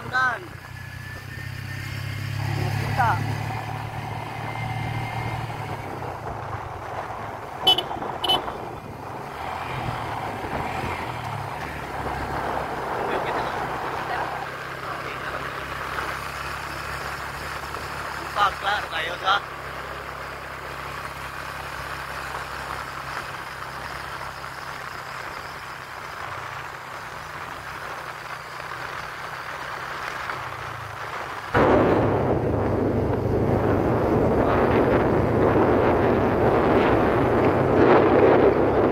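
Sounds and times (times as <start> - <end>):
road noise: 0.0 - 38.9
vehicle engine hum: 0.0 - 38.9
vehicle horn toots: 7.6 - 8.7.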